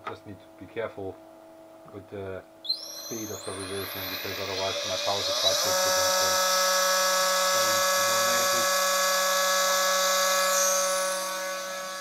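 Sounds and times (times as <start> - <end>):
electric motor whine: 2.7 - 12.0.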